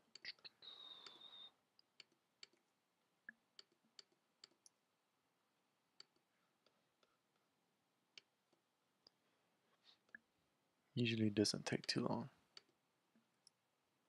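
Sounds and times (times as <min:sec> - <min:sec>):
computer mouse clicks: 0:00.0 - 0:02.6, 0:03.3 - 0:04.8.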